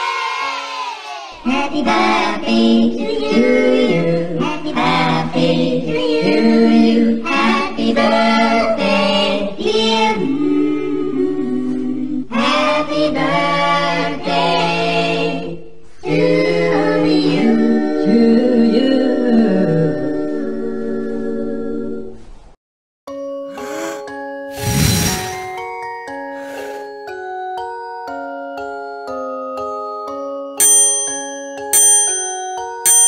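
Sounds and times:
choir singing: 0.0 - 21.9.

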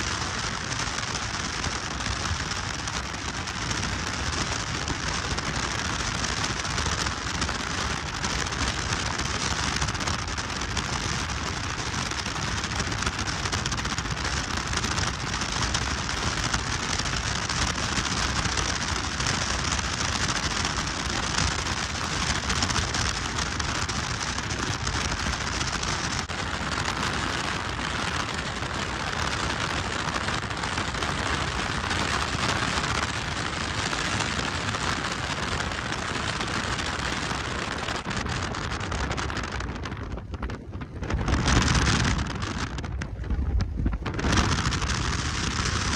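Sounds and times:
wind and road noise in car: 0.0 - 45.9.

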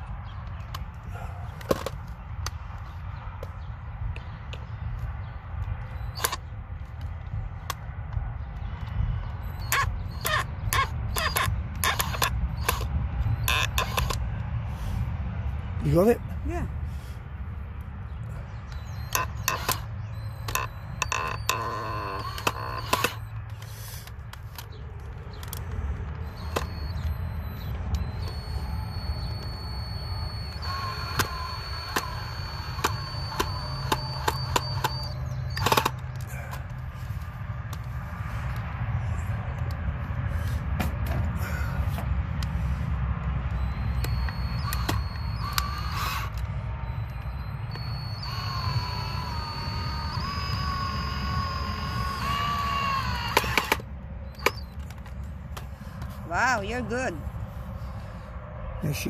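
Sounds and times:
sharp clicks: 1.6 - 14.5, 18.6 - 36.8, 43.2 - 56.1
cordless drill whining: 5.9 - 6.5, 9.5 - 14.2, 18.7 - 36.3, 43.5 - 55.1.

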